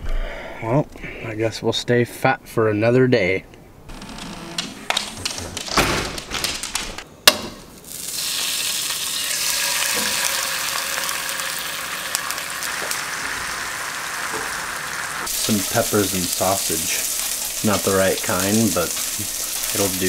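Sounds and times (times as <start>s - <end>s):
knocks and clicks: 3.9s - 7.6s
fat sizzling in a frying pan: 7.8s - 20.0s.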